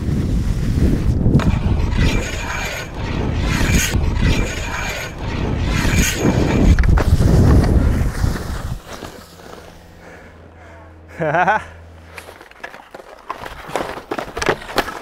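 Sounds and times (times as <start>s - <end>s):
wind rumble on microphone: 0.0s - 8.9s
skis scraping on metal rail: 1.4s - 9.8s.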